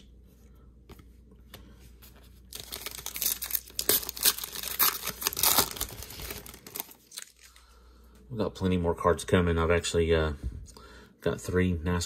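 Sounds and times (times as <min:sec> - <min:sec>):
foil wrapper tearing and crinkling: 0:02.5 - 0:07.5.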